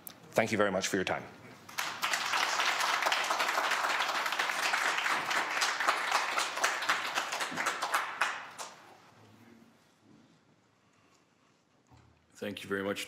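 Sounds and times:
audience applauding: 1.7s - 8.8s.

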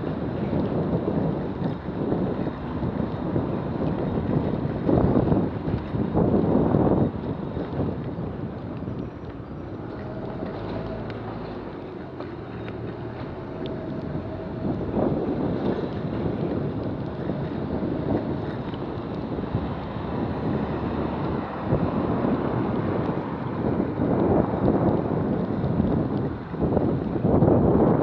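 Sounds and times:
wind rushing over microphone: 0.0s - 28.0s
lorry engine running: 8.5s - 22.2s.

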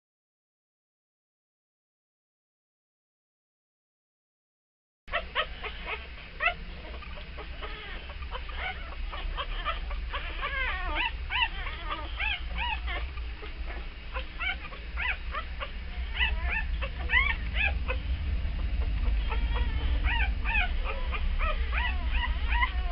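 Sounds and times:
low steady hum: 5.1s - 22.9s
puppies squeaking and whimpering: 5.1s - 22.9s.

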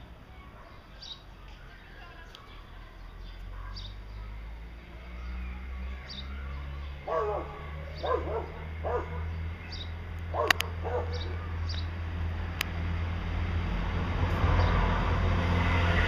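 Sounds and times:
sharp clicks: 10.2s - 10.7s.

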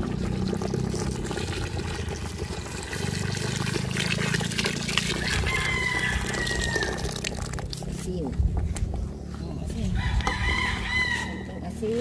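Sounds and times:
liquid pouring into a pot: 0.0s - 8.0s.

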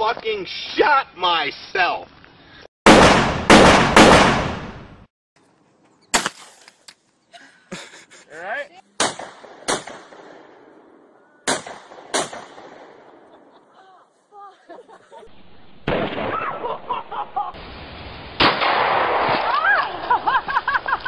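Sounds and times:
rifle shots: 2.9s - 4.9s, 9.0s - 10.8s, 11.5s - 13.3s, 15.9s - 16.8s, 18.4s - 19.5s
loud gunshots: 2.9s - 5.0s, 9.0s - 10.6s, 11.5s - 13.1s, 15.9s - 16.8s, 18.4s - 19.5s.

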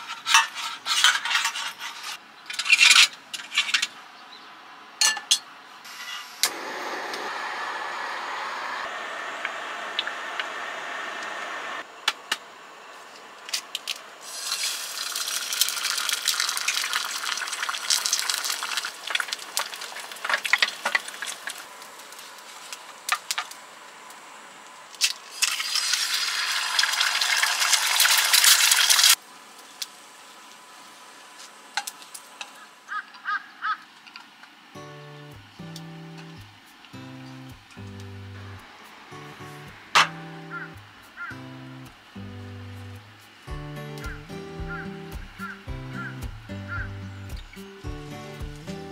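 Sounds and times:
gas burner hiss: 5.9s - 11.9s
eggs sizzling and crackling: 14.2s - 23.7s, 25.0s - 30.0s.

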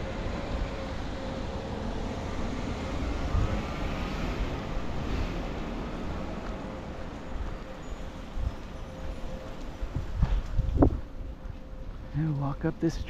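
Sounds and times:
wind rumbling on microphone: 0.0s - 13.0s
motor vehicle passing: 1.0s - 7.8s.

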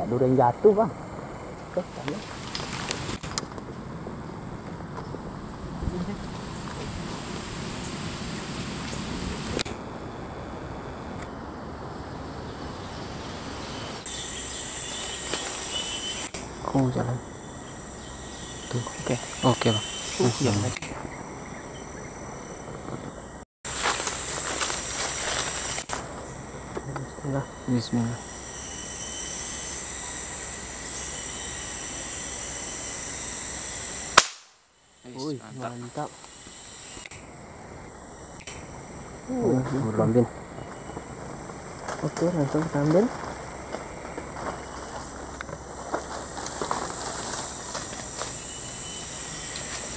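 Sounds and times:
faint insect buzzing: 0.0s - 49.9s
sharp click: 34.2s - 34.5s
rifle gunshot: 34.2s - 34.6s.

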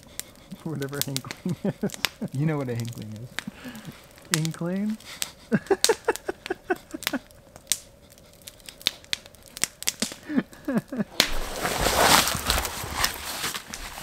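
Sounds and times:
campfire crackling and popping: 0.0s - 14.0s
brushing against branches: 10.9s - 14.0s
footsteps crunching through snow: 11.1s - 14.0s.

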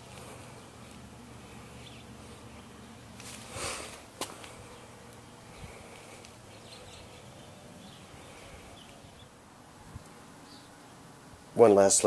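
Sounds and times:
faint outdoor ambience: 0.0s - 12.0s.

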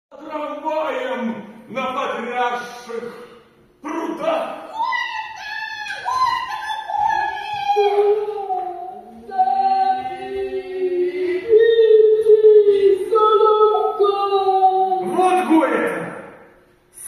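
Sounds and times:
voices singing in harmony: 4.7s - 15.6s.

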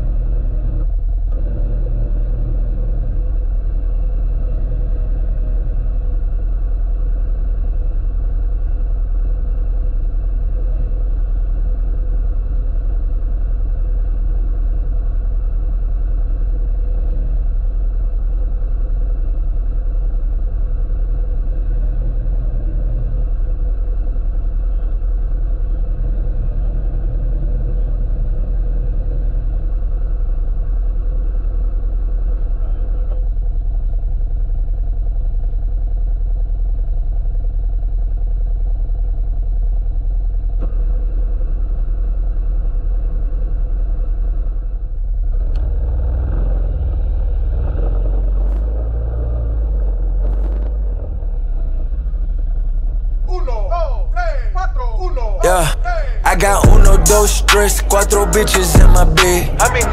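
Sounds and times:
off-road vehicle engine rumbling: 0.0s - 59.9s.

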